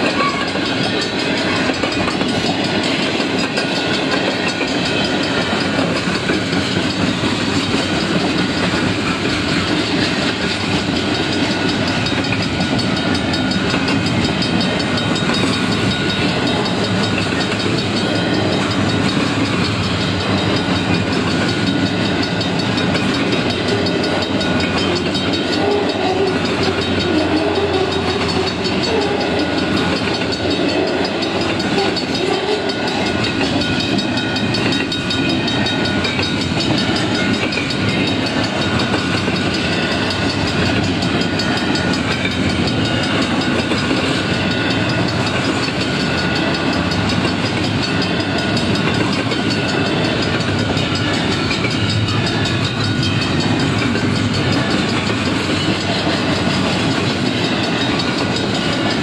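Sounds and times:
freight train wheels rumbling: 0:00.0 - 0:59.0.

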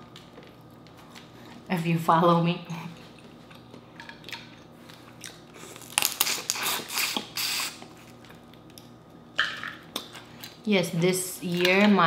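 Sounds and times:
crawfish shells cracking: 0:05.2 - 0:07.2.

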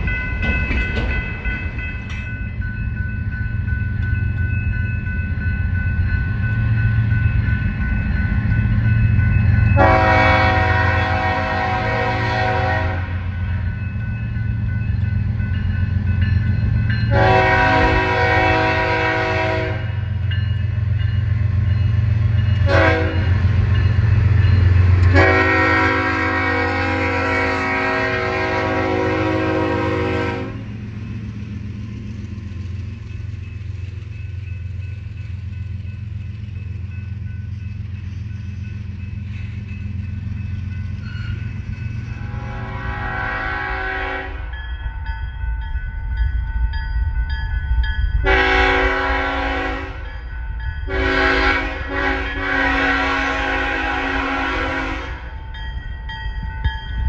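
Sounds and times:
freight cars rolling: 0:00.0 - 0:02.6
diesel locomotive engine rumbling: 0:00.0 - 0:57.0
distant train horn: 0:09.6 - 0:13.5, 0:17.1 - 0:20.2, 0:22.6 - 0:23.6, 0:24.8 - 0:30.9, 0:40.9 - 0:44.6, 0:48.2 - 0:50.2, 0:50.8 - 0:55.4
train air horn blasts: 0:09.8 - 0:13.3, 0:17.1 - 0:20.0, 0:22.6 - 0:23.4, 0:25.0 - 0:30.7, 0:42.2 - 0:44.5, 0:48.2 - 0:50.1, 0:50.9 - 0:55.4.

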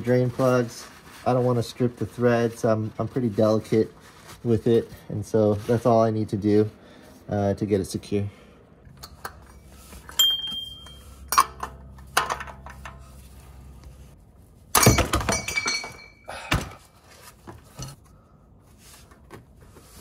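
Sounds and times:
metal tools clinking: 0:09.0 - 0:13.1, 0:14.8 - 0:16.3.

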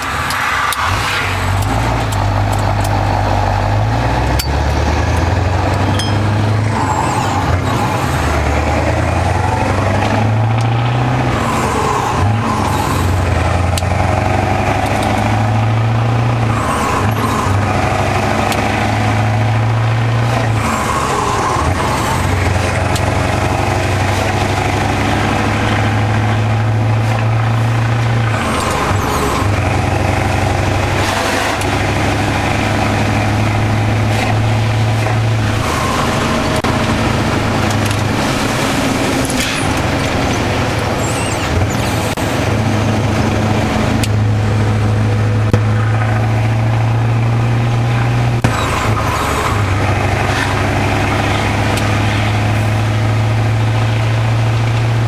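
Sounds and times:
diesel truck engine pulling away: 0:00.0 - 0:55.0.

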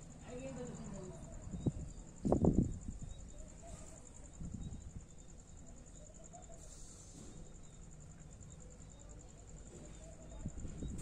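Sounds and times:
cricket trilling: 0:00.0 - 0:11.0.

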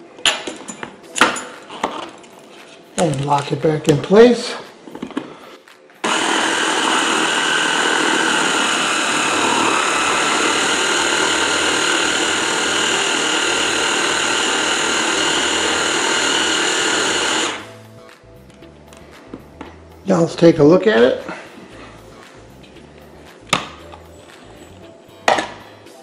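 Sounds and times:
blender motor whining: 0:06.0 - 0:17.7.

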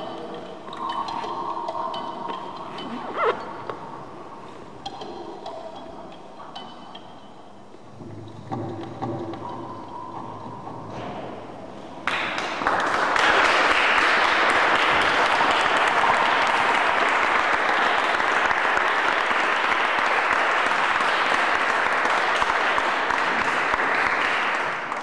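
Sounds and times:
audience applauding: 0:12.0 - 0:25.0.

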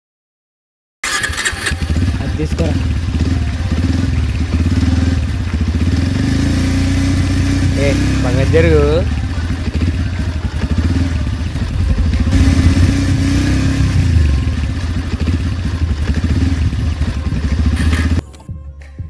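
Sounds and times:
motorcycle engine running: 0:01.0 - 0:18.4.

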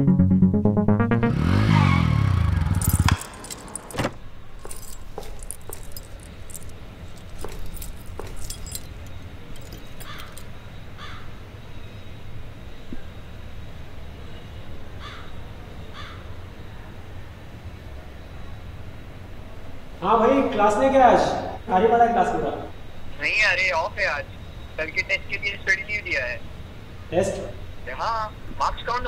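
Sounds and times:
electronic music: 0:00.0 - 0:02.7
keys jingling on a keychain: 0:02.7 - 0:10.5
low steady background hum: 0:02.8 - 0:29.0.

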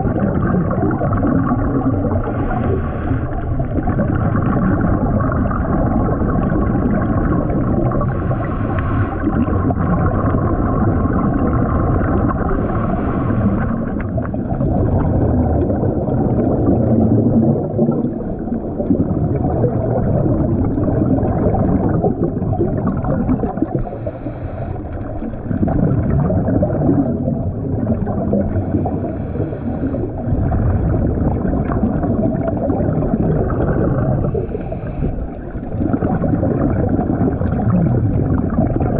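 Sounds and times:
faint steady hum: 0:00.0 - 0:18.9
muffled underwater rumble and bubbles: 0:00.0 - 0:38.9
scuba regulator breaths and bubbles: 0:00.0 - 0:38.9.

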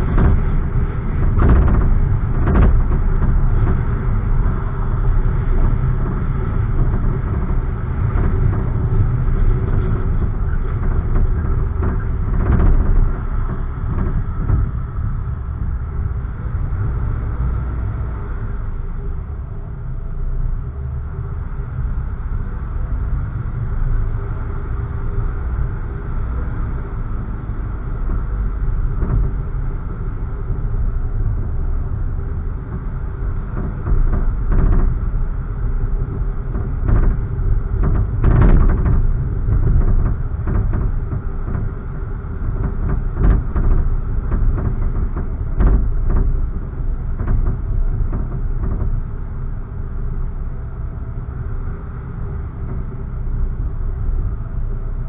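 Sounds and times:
car engine and tyre rumble: 0:00.0 - 0:55.0
knocks from road bumps: 0:36.5 - 0:41.8, 0:42.6 - 0:49.1.

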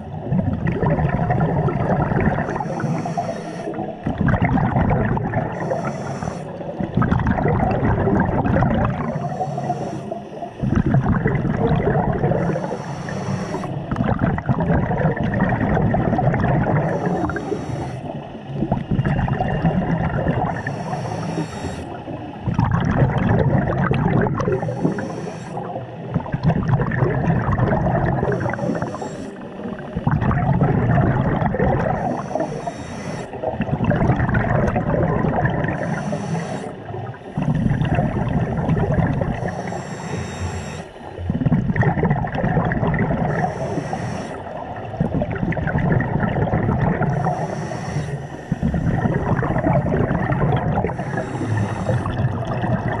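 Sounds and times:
bubbling exhalation: 0:00.0 - 0:02.6, 0:04.0 - 0:05.9, 0:06.8 - 0:09.2, 0:10.6 - 0:12.7, 0:13.6 - 0:17.4, 0:18.6 - 0:20.6, 0:22.4 - 0:25.1, 0:26.1 - 0:29.0, 0:29.6 - 0:32.5, 0:33.4 - 0:36.0, 0:37.0 - 0:39.5, 0:41.3 - 0:43.6, 0:44.6 - 0:47.4, 0:48.6 - 0:53.0
regulator inhalation hiss: 0:02.5 - 0:03.9, 0:05.5 - 0:06.7, 0:09.0 - 0:10.7, 0:12.4 - 0:13.8, 0:16.8 - 0:18.3, 0:20.5 - 0:22.1, 0:24.6 - 0:25.8, 0:28.2 - 0:29.8, 0:32.0 - 0:33.5, 0:35.7 - 0:37.6, 0:39.3 - 0:41.2, 0:43.3 - 0:44.6, 0:47.1 - 0:49.6, 0:50.9 - 0:52.3.

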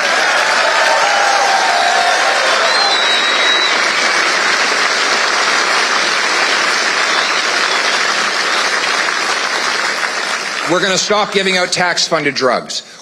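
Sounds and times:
crowd applauding: 0:00.0 - 0:11.9
high whistle: 0:02.5 - 0:04.0.

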